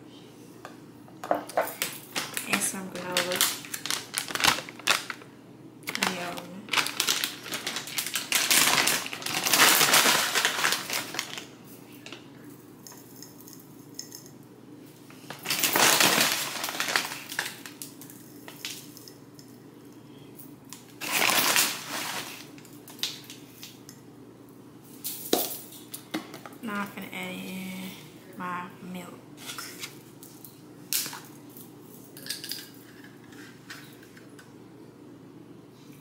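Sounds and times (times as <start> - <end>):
granola rattling into glass jars: 5.9 - 11.4, 15.4 - 19.1, 21.0 - 22.4.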